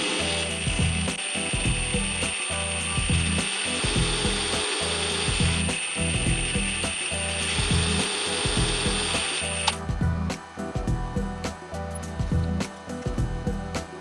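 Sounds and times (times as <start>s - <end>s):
metal lathe whining: 0.0s - 9.8s.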